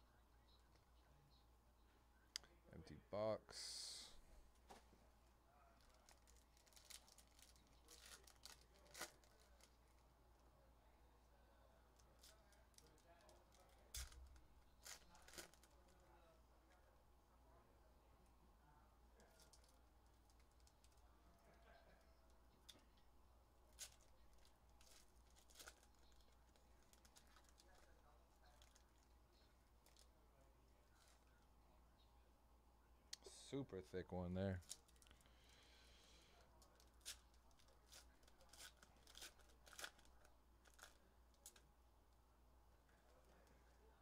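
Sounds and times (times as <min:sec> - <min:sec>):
wrappers crinkling and tearing: 0:05.8 - 0:10.0, 0:12.2 - 0:16.0, 0:23.7 - 0:29.1, 0:36.6 - 0:41.6
card packs clicking and rustling: 0:14.8 - 0:15.8, 0:23.8 - 0:27.8.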